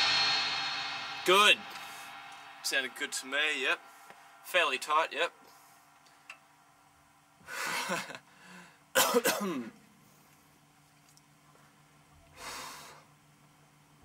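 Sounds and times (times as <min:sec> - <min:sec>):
person coughing: 0:09.0 - 0:09.8.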